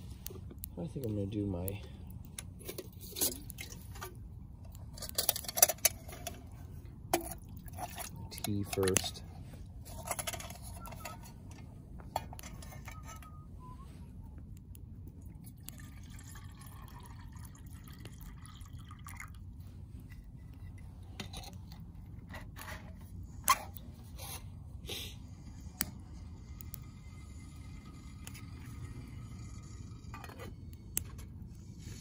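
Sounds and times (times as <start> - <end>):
water pouring into metal mug: 15.5 - 19.4.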